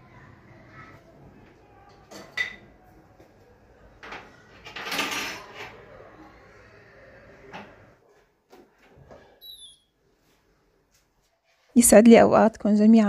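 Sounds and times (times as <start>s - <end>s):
kitchenware clatter: 1.9s - 2.8s, 4.0s - 5.9s
kitchenware knocks and clinks: 1.9s - 2.8s, 4.0s - 5.8s.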